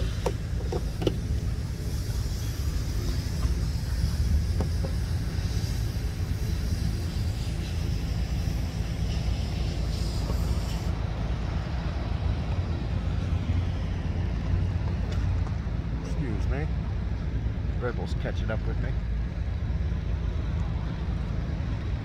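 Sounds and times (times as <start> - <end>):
high hiss: 0.0 - 14.6
low outdoor rumble: 0.0 - 22.0.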